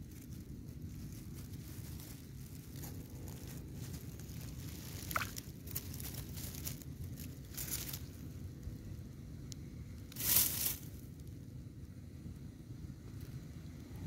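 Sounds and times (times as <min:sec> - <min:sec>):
rustling and crackling: 0:00.0 - 0:08.7, 0:10.0 - 0:11.3
steady low rumble: 0:00.0 - 0:14.0.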